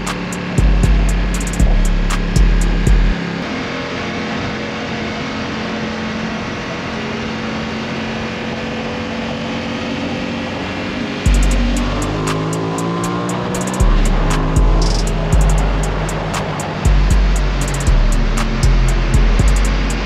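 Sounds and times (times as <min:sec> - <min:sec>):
bass-heavy beat with hi-hats: 0:00.0 - 0:03.2, 0:11.3 - 0:20.0
motorcycle engine running: 0:00.0 - 0:20.0.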